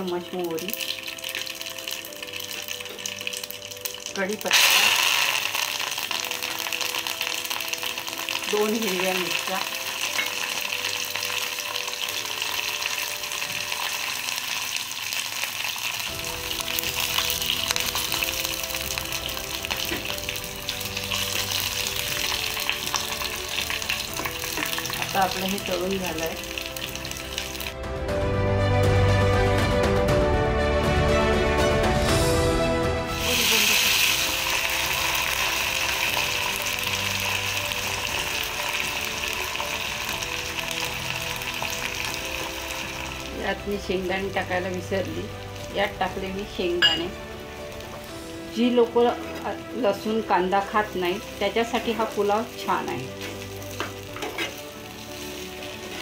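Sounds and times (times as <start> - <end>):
spices sizzling in hot oil: 0.0 - 27.8, 33.1 - 56.0
steel spoon stirring: 53.2 - 54.6.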